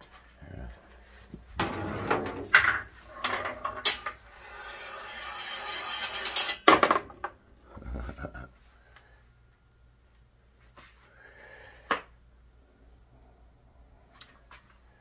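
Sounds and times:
metal balls rolling and rattling: 1.6s - 7.3s
metal balls clattering: 2.4s - 7.3s.

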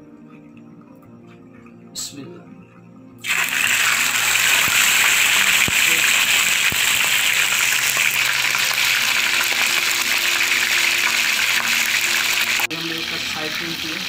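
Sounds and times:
oil popping: 3.2s - 12.8s
chicken sizzling in oil: 3.2s - 14.0s.

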